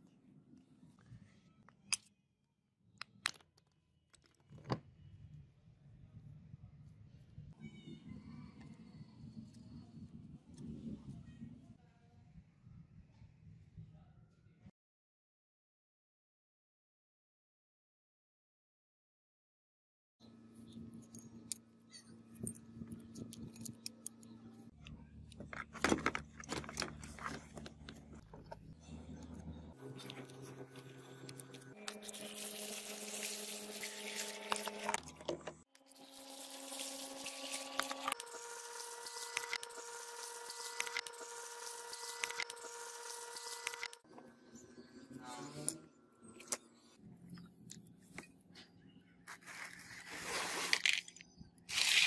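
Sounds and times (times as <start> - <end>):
pitched electrical hum: 20.4 - 44.0.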